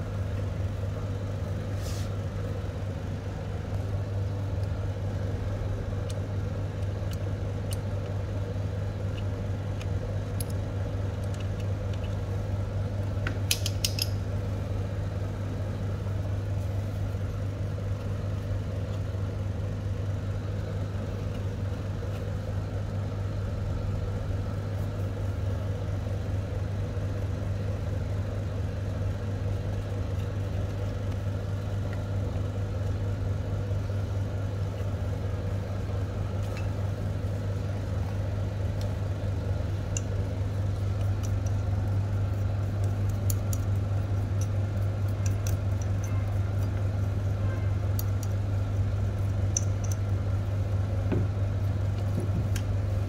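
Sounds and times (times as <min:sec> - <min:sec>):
low machine hum: 0:00.0 - 0:53.0
small metal parts clicking: 0:13.5 - 0:14.2.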